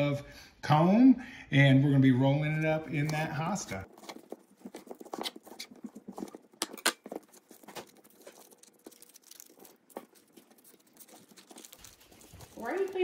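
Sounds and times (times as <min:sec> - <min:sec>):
knife cutting honeycomb: 0:02.6 - 0:13.0.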